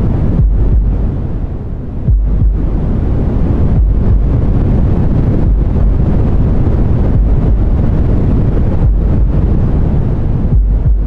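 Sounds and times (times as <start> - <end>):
deep white noise rumble: 0.0 - 11.0.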